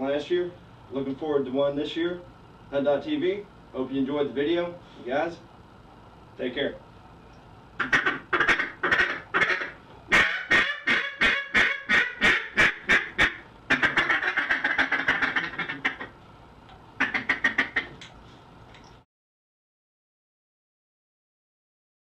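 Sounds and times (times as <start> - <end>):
duck call quacks and chatter: 7.8 - 16.1, 17.0 - 17.9.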